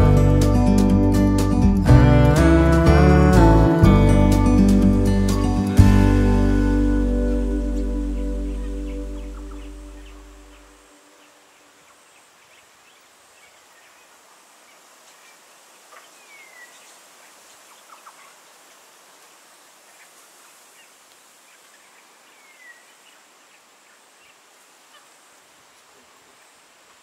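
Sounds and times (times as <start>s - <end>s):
faint high hiss: 0.0s - 27.0s
bird chirps: 7.8s - 14.1s.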